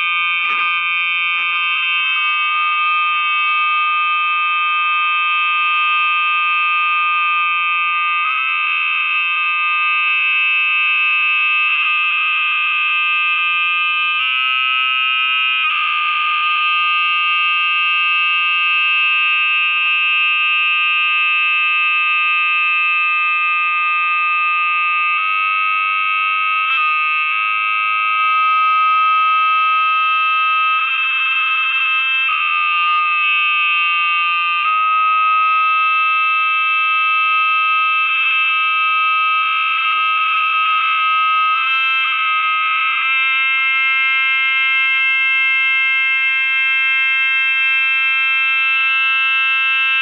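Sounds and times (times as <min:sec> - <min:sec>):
high-pitched electronic drone: 0:00.0 - 0:02.4, 0:24.2 - 0:36.6.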